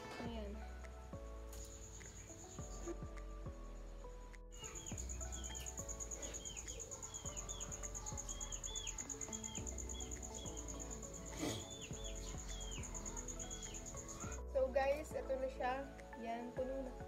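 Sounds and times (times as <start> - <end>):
high cricket-like trill: 0.0 - 17.0
soft background music: 0.0 - 17.0
bird-like chirps: 1.6 - 3.0, 4.5 - 14.5.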